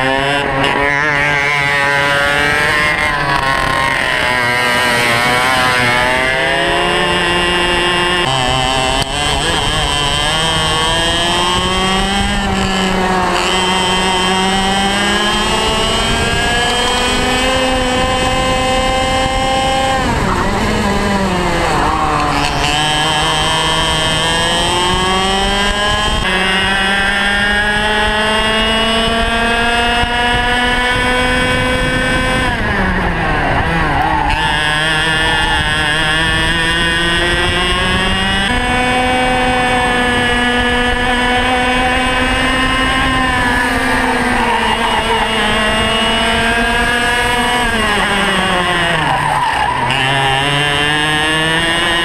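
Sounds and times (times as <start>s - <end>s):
kart engine revving: 0.0s - 52.0s.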